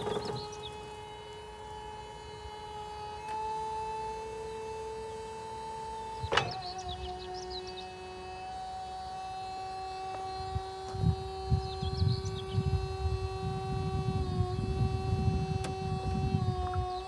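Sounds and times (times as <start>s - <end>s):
hydraulic pump motor whining: 0.0s - 17.0s
gusty low rumble: 10.4s - 17.0s.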